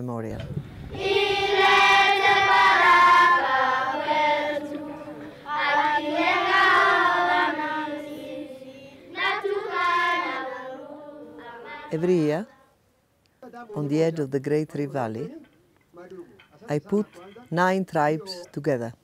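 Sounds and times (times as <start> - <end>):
children's choir singing: 0.9 - 12.4.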